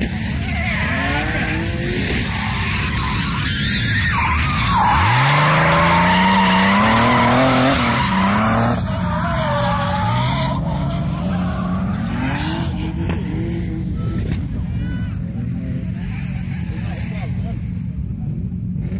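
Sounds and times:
car engine revving: 0.0s - 14.8s
tyres squealing: 2.3s - 12.6s.

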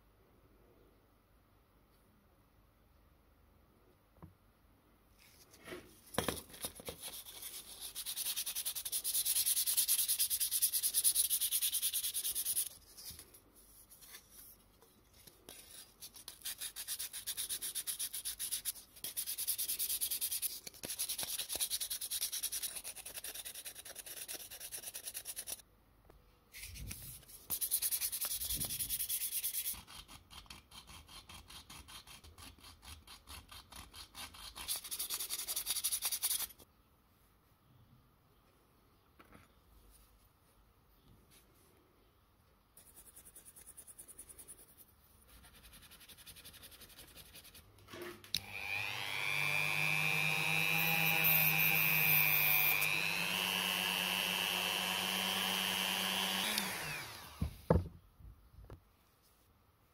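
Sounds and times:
sandpaper rubbing on tin: 27.5s - 33.2s.

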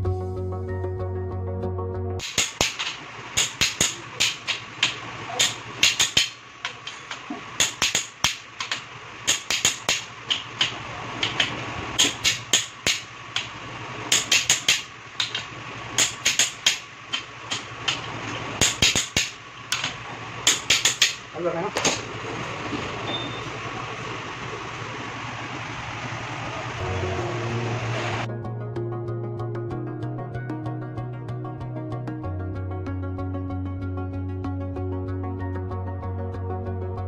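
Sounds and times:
ratchet wrench clicking: 2.2s - 18.0s, 18.6s - 21.3s.

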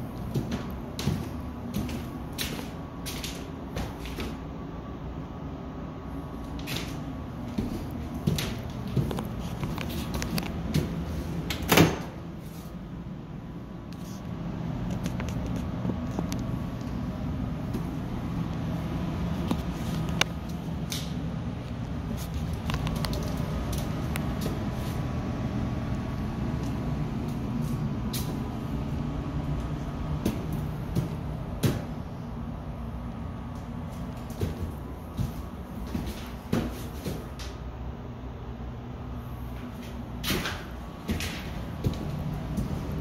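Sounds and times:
low steady hum: 0.0s - 43.0s
footsteps on paper-covered floor: 0.1s - 4.4s, 6.5s - 11.4s, 33.9s - 37.4s, 39.8s - 43.0s.

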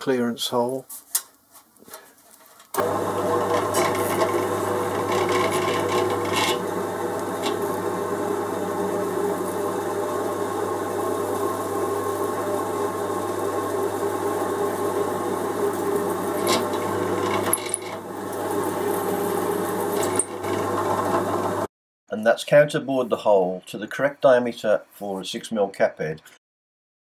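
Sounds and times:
cutter scraping metal: 2.8s - 7.8s, 16.2s - 21.4s
milling machine motor hum: 2.8s - 21.7s.

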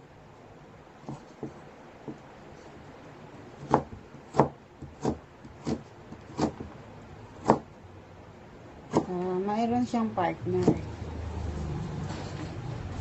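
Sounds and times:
knife chopping carrot on board: 1.0s - 2.2s, 3.6s - 6.7s, 7.4s - 7.7s, 8.9s - 9.2s, 10.6s - 10.9s.

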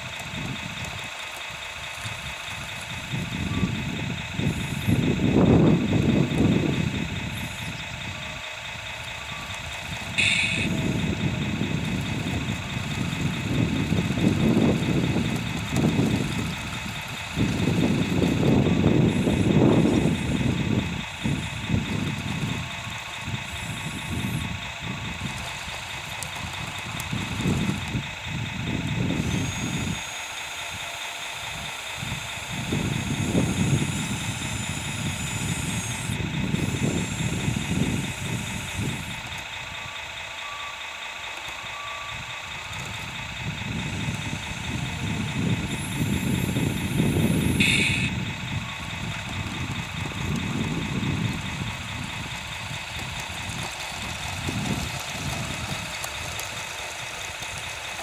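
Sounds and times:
low rumbling: 0.0s - 30.0s, 41.1s - 58.0s
model motors whining: 0.0s - 58.0s
short high-pitched burst: 10.1s - 10.9s, 45.7s - 48.2s.

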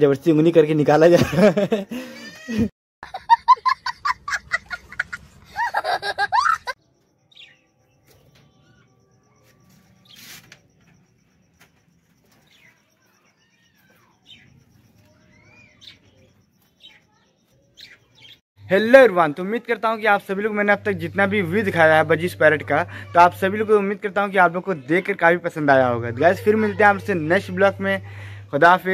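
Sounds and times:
child laughing loudly: 1.4s - 6.8s.

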